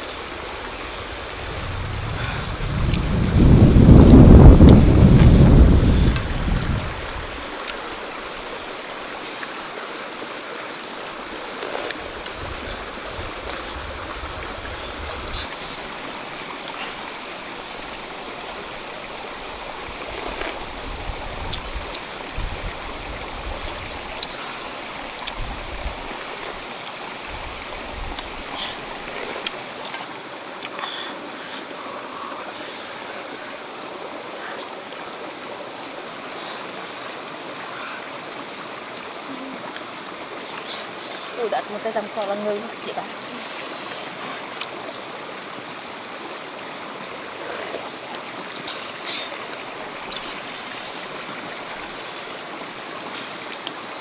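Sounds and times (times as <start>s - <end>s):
rocky stream running: 0.0s - 54.0s.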